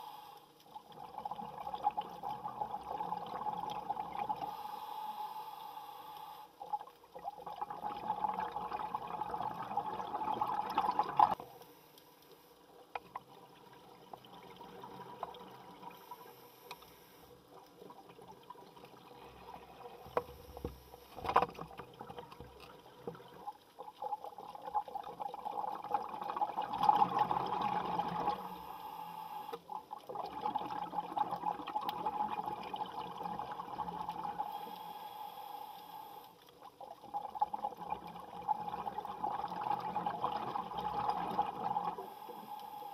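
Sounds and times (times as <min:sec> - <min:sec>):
underwater bubbling from exhaled air: 0:00.8 - 0:04.6, 0:06.6 - 0:11.4, 0:21.7 - 0:29.0, 0:29.7 - 0:34.9, 0:36.7 - 0:42.8.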